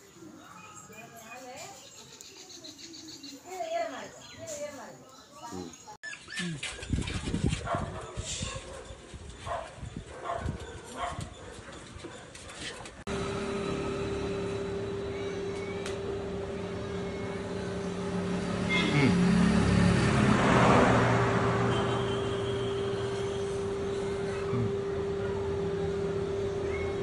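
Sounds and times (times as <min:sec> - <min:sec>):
steady mechanical hum: 0:13.1 - 0:20.3, 0:21.2 - 0:27.0.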